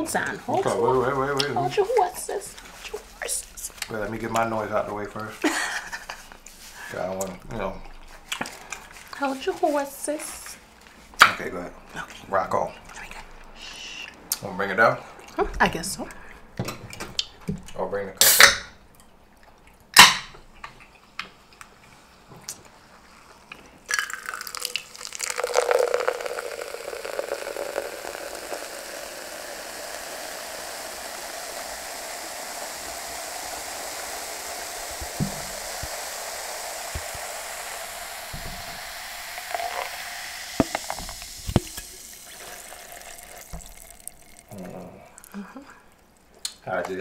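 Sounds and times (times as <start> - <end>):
liquid pouring into plastic cup: 23.9 - 46.0.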